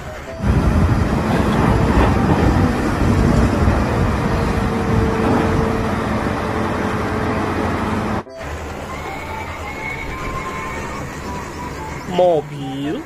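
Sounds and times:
diesel engine rumbling: 0.0 - 13.0.

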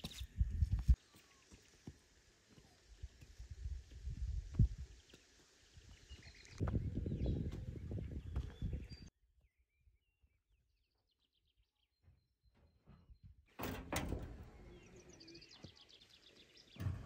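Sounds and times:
barn door knocking and scraping: 12.0 - 14.7, 16.8 - 17.0.

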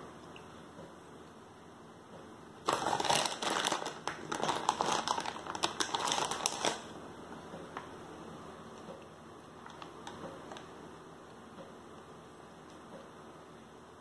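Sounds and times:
dense crinkling and crackling: 2.6 - 7.0, 9.6 - 10.7.

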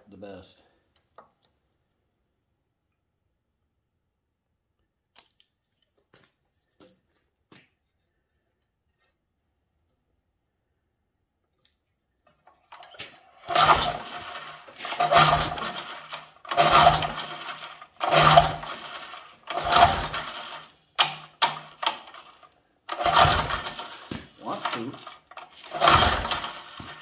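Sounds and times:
recoil starter rope pulls: 12.3 - 27.0
small engine cranking: 12.5 - 27.0.

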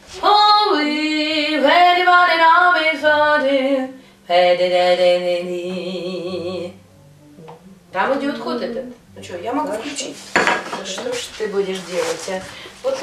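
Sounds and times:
woman singing wordless jazz: 0.0 - 7.1, 7.8 - 10.3.

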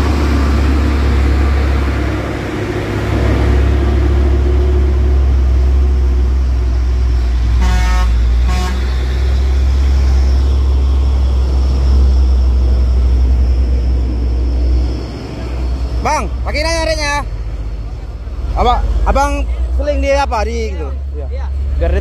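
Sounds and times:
heavy vehicle engine rumbling: 0.0 - 22.0
vehicle horn toots: 7.6 - 9.0.

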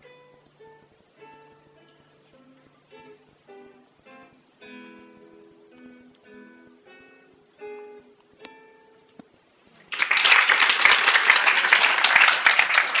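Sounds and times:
plucked guitar notes: 0.0 - 9.4
audience applause: 9.8 - 13.0.

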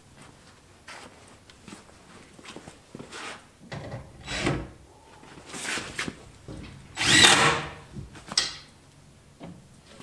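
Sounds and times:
cordless drill drilling: 7.0 - 7.6.

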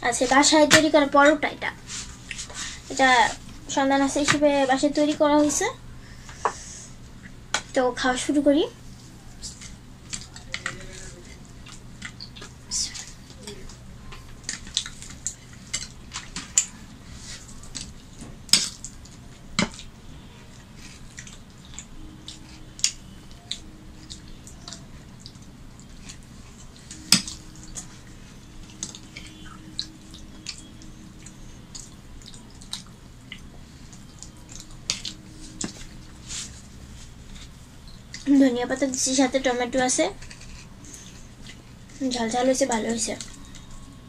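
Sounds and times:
low steady hum: 0.0 - 44.0.

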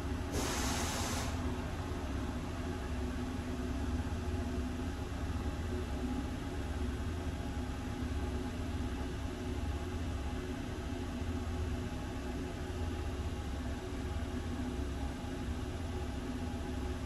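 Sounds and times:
burst of hiss: 0.3 - 1.4.

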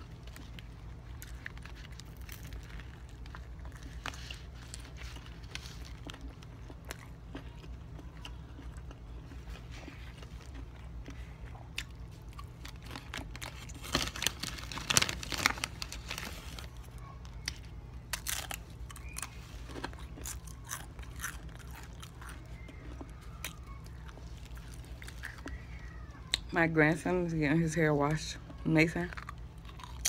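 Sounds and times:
person chewing crunchy food: 0.0 - 26.5, 29.1 - 30.0.

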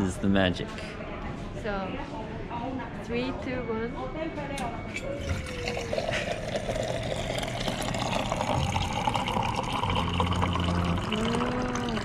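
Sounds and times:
machine humming: 5.1 - 12.0
water stream pouring into bottle: 5.2 - 12.0.

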